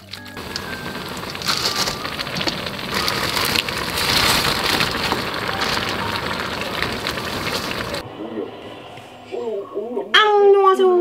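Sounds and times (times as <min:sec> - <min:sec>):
broth boiling in a pot: 0:00.0 - 0:08.0.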